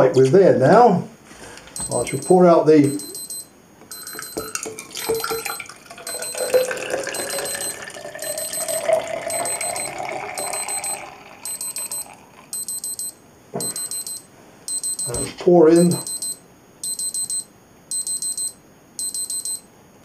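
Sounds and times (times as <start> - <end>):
timer alarm beeping: 1.8 - 19.7
liquid pouring into cylinder: 4.1 - 12.5.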